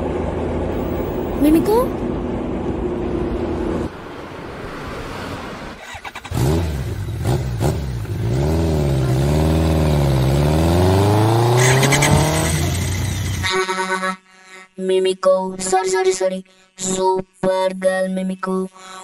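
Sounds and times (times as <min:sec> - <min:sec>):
motor vehicle engine revving: 0:05.7 - 0:13.5.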